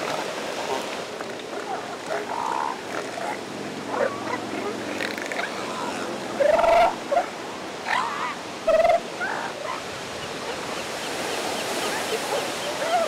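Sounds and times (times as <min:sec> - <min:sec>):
surf washing: 0:00.0 - 0:13.0
elephant seals yelping: 0:01.8 - 0:09.9.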